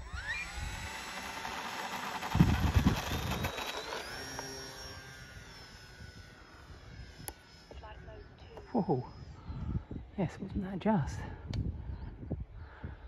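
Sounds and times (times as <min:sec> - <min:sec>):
model plane motor whine: 0:00.0 - 0:10.1.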